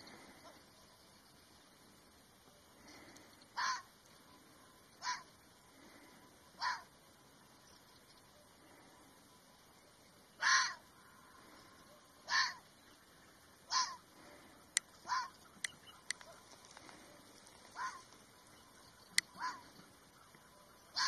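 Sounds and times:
fox barking: 3.6 - 3.9, 5.0 - 5.3, 6.6 - 6.9, 10.4 - 10.8, 11.9 - 12.6, 13.7 - 14.0, 15.0 - 17.0, 17.7 - 18.2, 19.2 - 19.8, 20.5 - 21.0.

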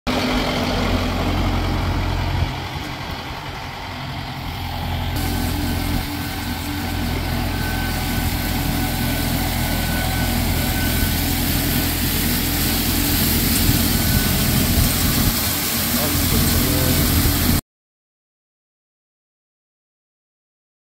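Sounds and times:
tractor diesel engine idling: 0.1 - 17.6
rotary broom sweeping gravel: 5.2 - 17.6.

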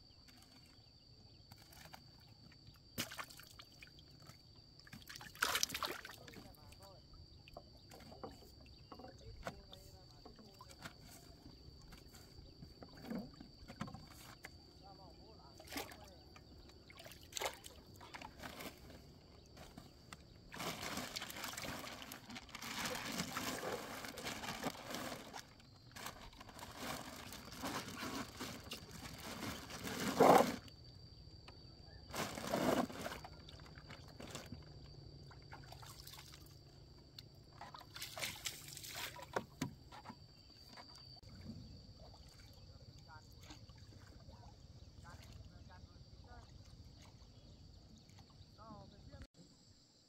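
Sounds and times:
water sloshing and trickling: 0.1 - 49.3
wet fishing net splashing: 5.0 - 6.3, 16.9 - 17.8, 20.5 - 25.4, 37.9 - 39.4.

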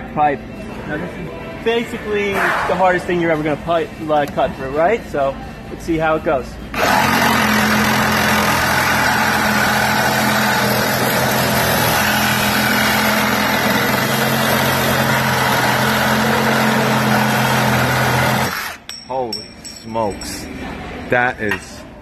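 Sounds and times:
reciprocating saw cutting steel pipe: 6.8 - 18.8.

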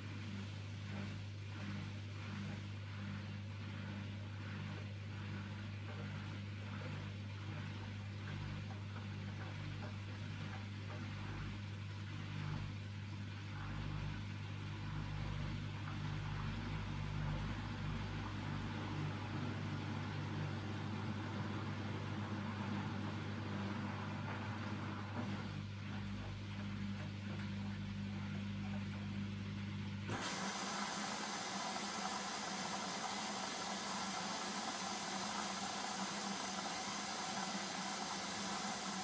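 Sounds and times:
washing machine motor hum: 0.0 - 39.0
laundry tumbling in washing machine: 15.3 - 29.0, 30.1 - 39.0.

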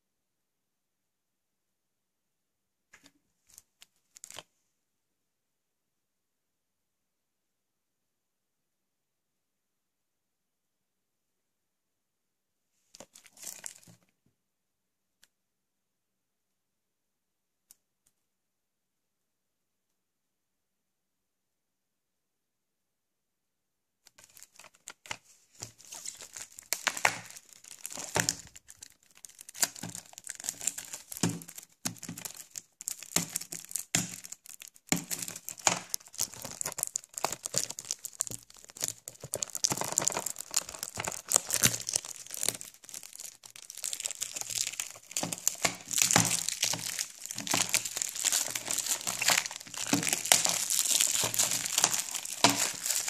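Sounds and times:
plastic shrink-wrap crinkling: 3.5 - 4.4, 13.0 - 14.0, 24.1 - 53.0.

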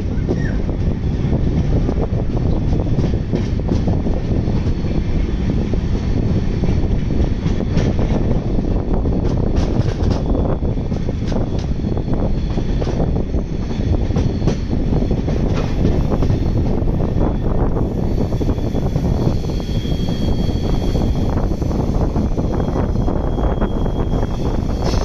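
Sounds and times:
train wheels rumbling on rail: 0.0 - 25.0.

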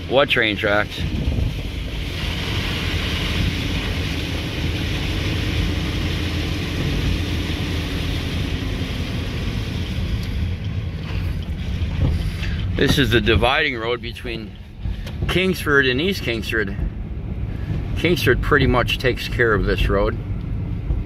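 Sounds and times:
car engine and road rumble: 0.0 - 21.0
tyres hissing on wet road: 1.8 - 10.2.

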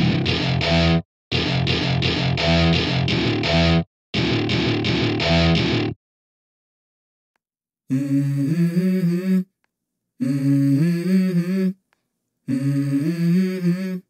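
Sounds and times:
person singing wordless melody: 7.9 - 9.6, 10.2 - 11.9, 12.5 - 14.0.

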